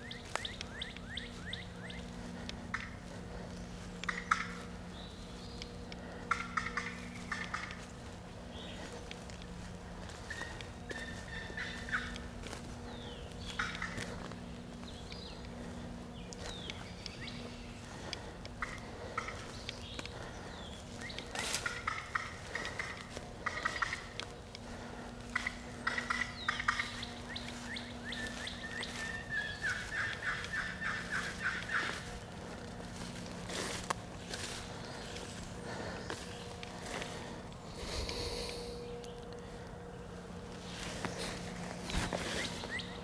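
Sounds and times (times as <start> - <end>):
faint songbirds chirping: 0.0 - 43.0
turkey call yelping: 4.0 - 4.8, 6.0 - 7.9, 10.1 - 12.3, 13.5 - 14.4, 21.0 - 24.2, 24.8 - 32.5.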